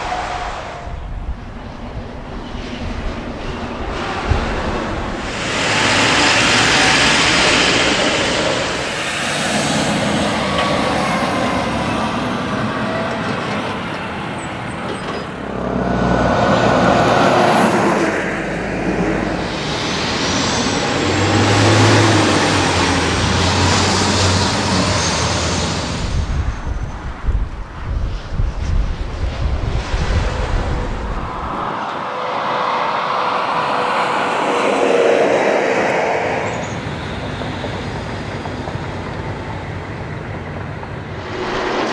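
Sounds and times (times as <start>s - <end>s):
trucks passing: 0.0s - 26.9s, 30.4s - 41.9s
diesel engines running: 3.2s - 26.2s.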